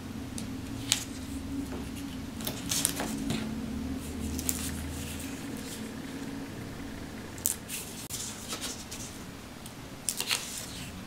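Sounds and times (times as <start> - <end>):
paper rustling and scraping: 7.4 - 9.2, 10.1 - 11.0.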